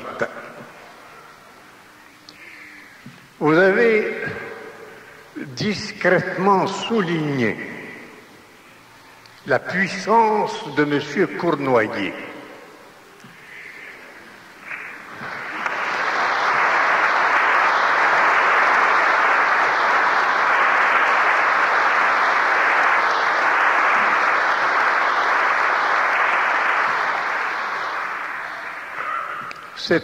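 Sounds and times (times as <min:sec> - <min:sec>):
congregation applauding: 0:13.3 - 0:30.0.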